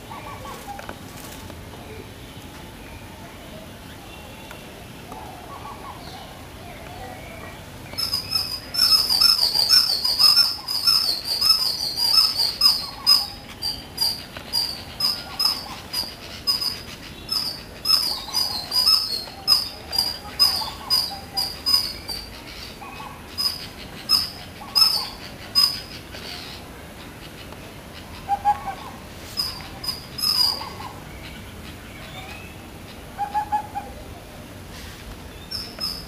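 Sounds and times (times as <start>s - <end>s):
squirrel chirping: 7.9s - 26.5s, 29.4s - 31.0s, 35.4s - 36.0s.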